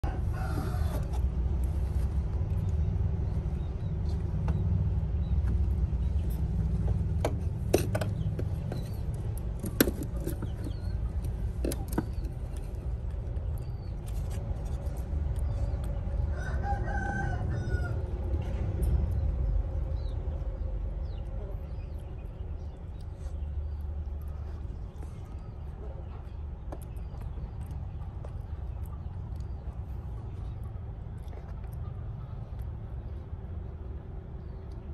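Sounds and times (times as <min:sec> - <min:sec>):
rooster crowing: 0:00.0 - 0:01.1, 0:16.3 - 0:18.1
steady low rumble: 0:00.0 - 0:34.9.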